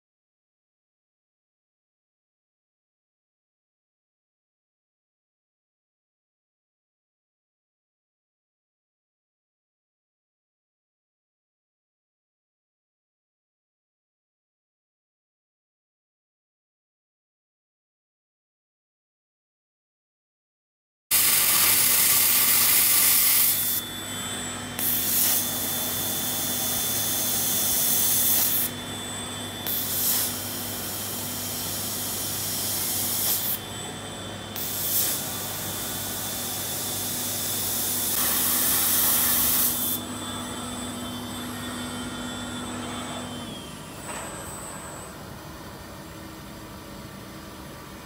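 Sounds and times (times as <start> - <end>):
milling spindle whine and hum: 21.2 - 48.0.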